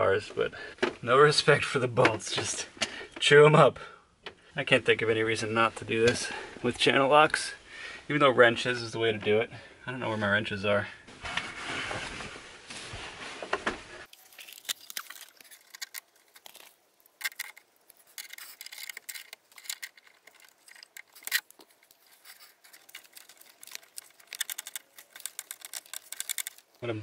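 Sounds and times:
pliers clicking and scraping on metal: 14.8s - 26.8s.

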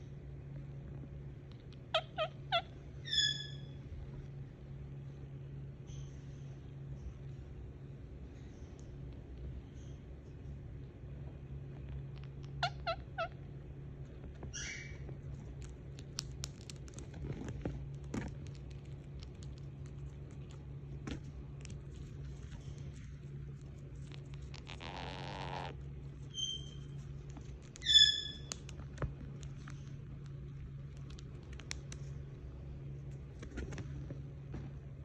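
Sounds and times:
steady low hum: 0.0s - 35.0s
parakeet chirping: 1.9s - 3.8s, 12.5s - 13.4s, 14.5s - 15.0s, 26.3s - 26.9s, 27.8s - 28.6s
parakeet squawk: 1.9s - 3.8s, 12.5s - 13.4s, 14.5s - 15.0s, 27.8s - 28.6s.

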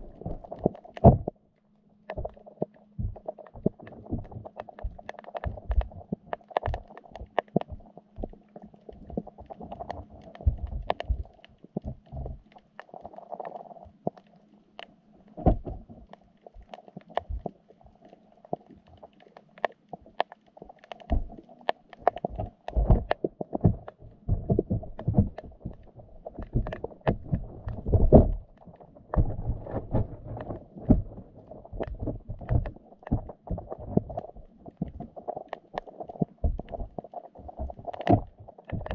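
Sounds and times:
muffled underwater thumps: 0.0s - 1.3s, 3.0s - 6.8s, 10.4s - 12.5s, 15.4s - 16.0s, 22.1s - 35.2s, 36.1s - 38.9s
murky underwater hum: 0.0s - 38.9s.

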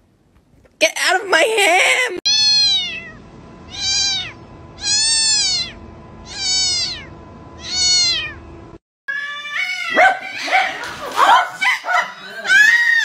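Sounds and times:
cat meowing: 2.3s - 8.4s, 9.1s - 10.4s.

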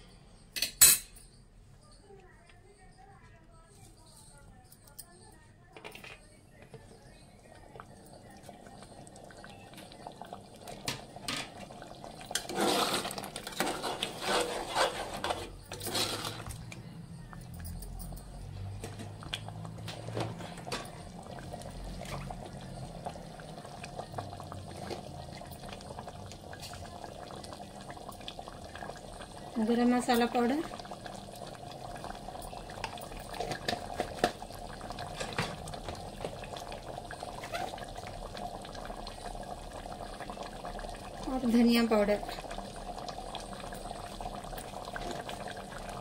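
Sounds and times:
gravy sloshing: 7.3s - 16.7s, 17.3s - 41.5s
spoon scraping metal pot: 12.3s - 16.7s.

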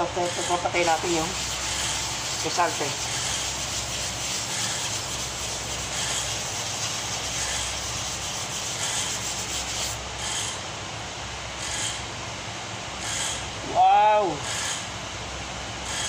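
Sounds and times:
sanding block scraping filler: 0.0s - 10.5s.

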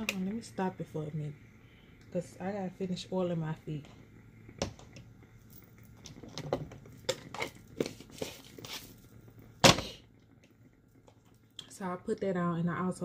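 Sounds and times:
rustling and crinkling: 5.4s - 9.3s.

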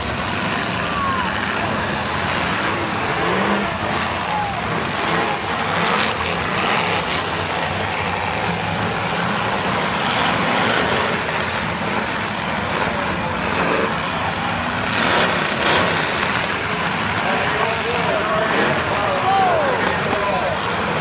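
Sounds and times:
car engines running together: 0.0s - 21.0s.

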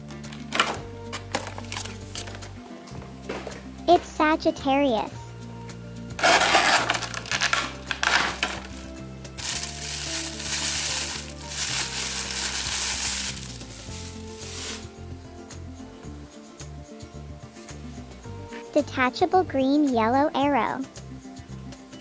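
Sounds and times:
soft background music: 0.0s - 22.0s
plastic bag crinkling: 6.2s - 14.9s.

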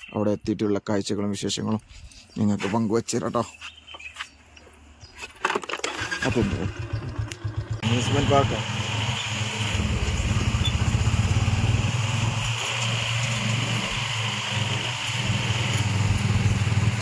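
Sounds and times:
vehicle engine running: 6.0s - 17.0s.

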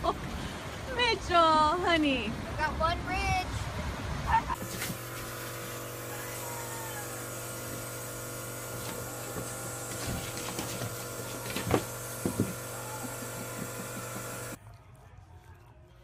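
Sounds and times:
appliance humming: 4.6s - 14.6s.

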